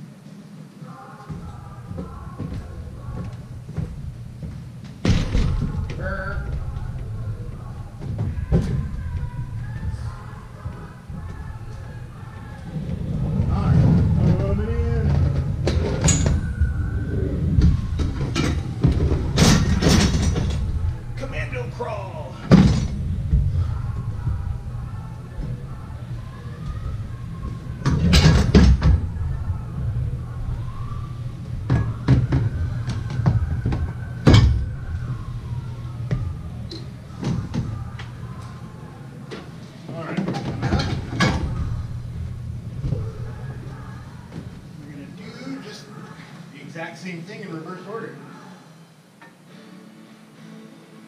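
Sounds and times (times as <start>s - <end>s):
machinery low rumble: 1.4s - 39.7s, 40.7s - 45.0s
metallic clanks and knocks: 12.9s - 16.6s, 17.6s - 21.2s, 27.8s - 29.1s, 31.6s - 35.0s, 40.2s - 42.0s
rattling clatter: 17.4s - 21.2s.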